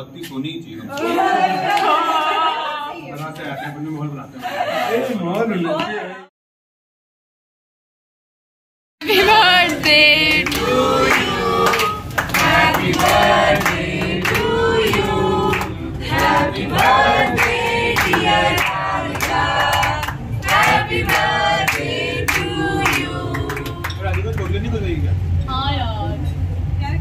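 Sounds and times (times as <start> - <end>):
group singing: 0.9 - 3.1, 9.0 - 24.2
hands clapping: 9.6 - 24.6.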